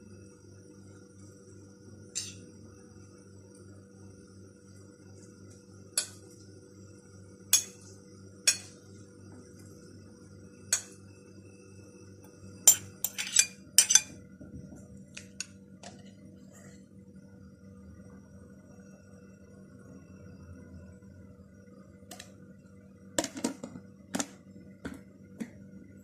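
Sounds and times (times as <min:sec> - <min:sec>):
faint hum: 0:00.0 - 0:26.0
metal spoon clinking on glass: 0:02.2 - 0:02.4, 0:07.6 - 0:07.8, 0:08.5 - 0:08.8, 0:12.7 - 0:14.1.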